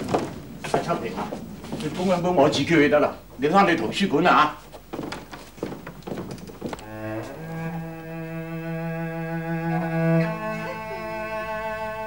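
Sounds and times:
mournful bowed string music: 0:06.8 - 0:12.0.

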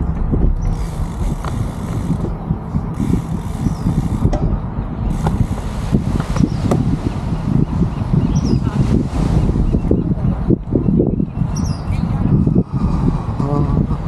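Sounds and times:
bicycle rattle: 0:00.0 - 0:04.4, 0:05.1 - 0:06.6
wind on microphone: 0:00.0 - 0:14.0.

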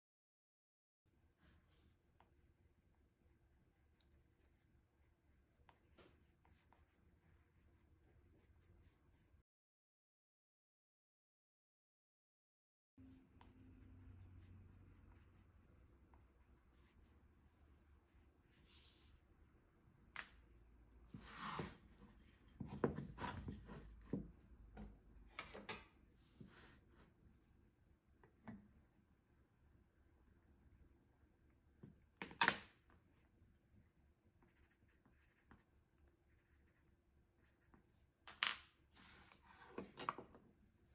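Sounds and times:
pencil scratching on paper: 0:03.2 - 0:09.4, 0:13.4 - 0:17.2, 0:34.4 - 0:37.9.

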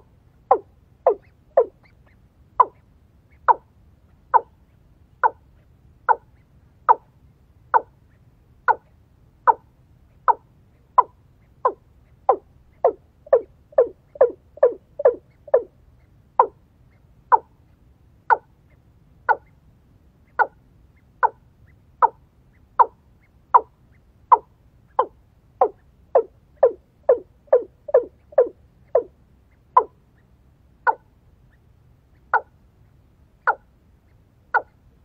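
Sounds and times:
bird clucking calls: 0:00.0 - 0:03.7, 0:04.3 - 0:04.6, 0:06.1 - 0:07.1, 0:08.7 - 0:08.9, 0:09.5 - 0:15.7, 0:16.4 - 0:16.6, 0:17.3 - 0:17.5, 0:19.3 - 0:19.6, 0:20.3 - 0:20.6, 0:22.0 - 0:30.0, 0:30.8 - 0:31.1, 0:32.2 - 0:32.5, 0:33.4 - 0:33.6, 0:34.5 - 0:34.8.

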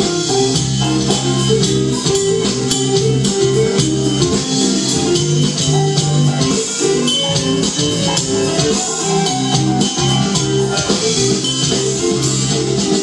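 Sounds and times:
band playing live: 0:00.0 - 0:13.0
bass line: 0:00.0 - 0:13.0
drum kit beat with cymbals: 0:00.0 - 0:13.0.

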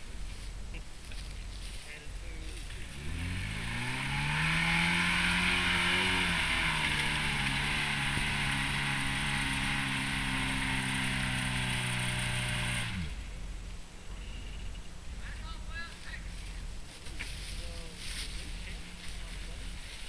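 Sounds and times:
car engine revving high: 0:02.8 - 0:13.4.

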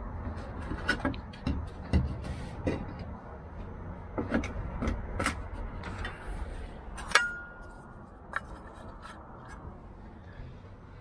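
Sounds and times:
sharp metallic clink: 0:07.0 - 0:07.7.

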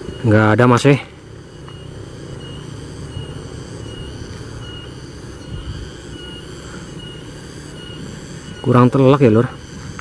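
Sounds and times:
steady low rumbling: 0:01.1 - 0:08.6.

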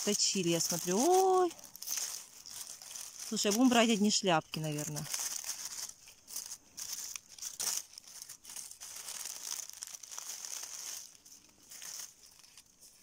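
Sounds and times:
dry leaves crinkling: 0:00.0 - 0:13.0.

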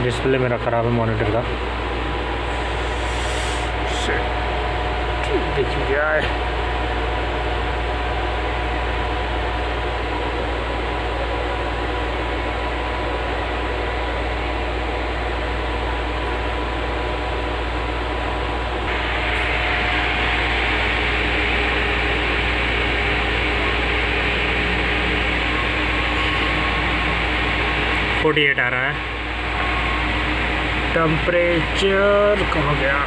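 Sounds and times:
cooling fan whirring: 0:00.0 - 0:33.0
low hum: 0:00.0 - 0:33.0.

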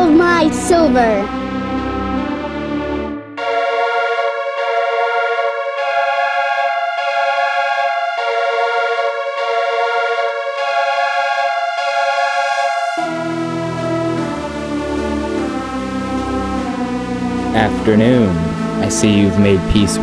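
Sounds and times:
sustained synthesizer chords: 0:00.0 - 0:20.0.

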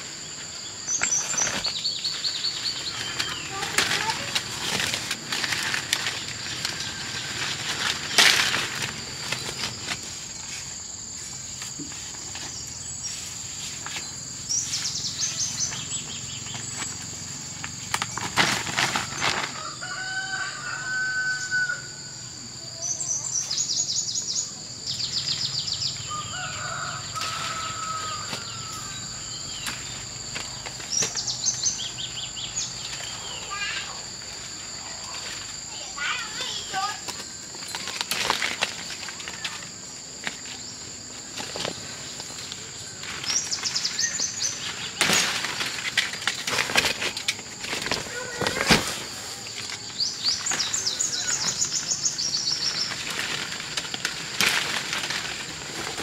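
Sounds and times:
rustling crackles of branches: 0:00.0 - 0:21.9, 0:22.7 - 0:56.0
high insect drone: 0:00.0 - 0:56.0
rooster crowing: 0:19.5 - 0:22.2, 0:26.0 - 0:29.3.

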